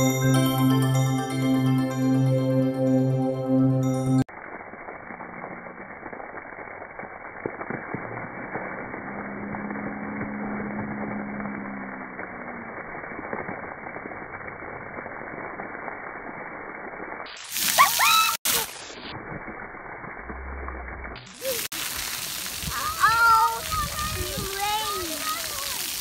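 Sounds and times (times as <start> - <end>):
water pouring and splashing: 4.2 - 26.0
low drawn-out tone: 7.8 - 13.9.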